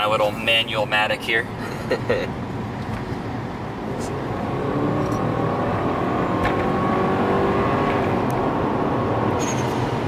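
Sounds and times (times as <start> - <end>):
car engine accelerating hard: 3.8 - 10.0.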